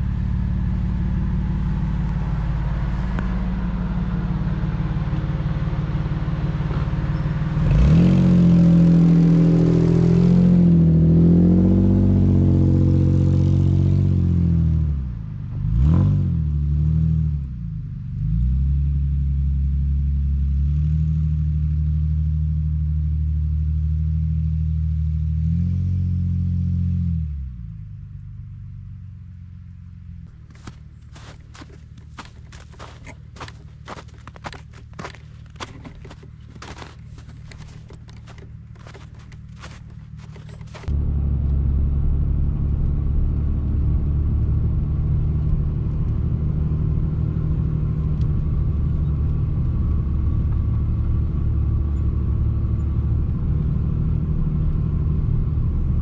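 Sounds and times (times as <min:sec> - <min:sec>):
pickup engine revving: 0:00.0 - 0:14.0.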